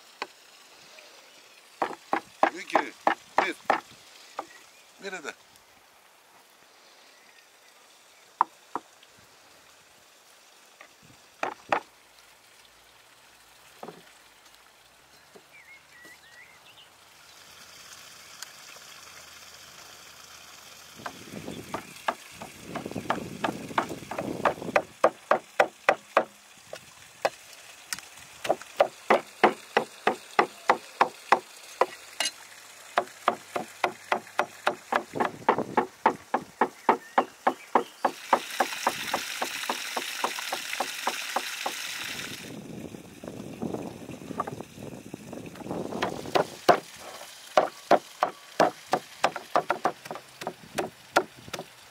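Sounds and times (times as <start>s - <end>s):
cleaver chopping meat on wood: 1.8s - 3.8s, 11.4s - 11.9s, 21.8s - 26.3s, 28.4s - 32.0s, 33.0s - 41.8s, 46.0s - 46.9s, 47.6s - 51.7s.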